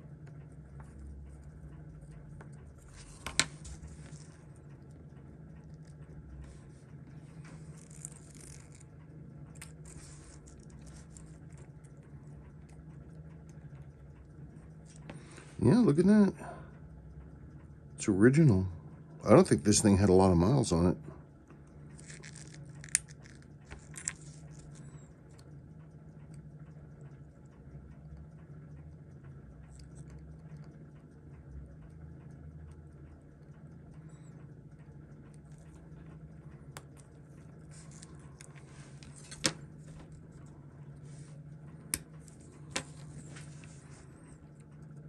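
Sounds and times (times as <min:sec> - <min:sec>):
steady low hum: 0:00.0 - 0:45.0
tweezers clicking on watch parts: 0:07.5 - 0:08.9.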